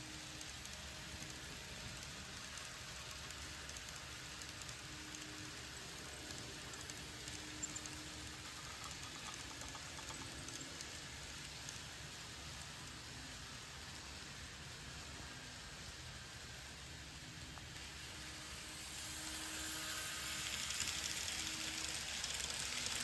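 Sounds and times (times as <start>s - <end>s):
model train wheels rattling: 0.0s - 14.2s, 17.7s - 23.0s
faint hum: 0.0s - 23.0s.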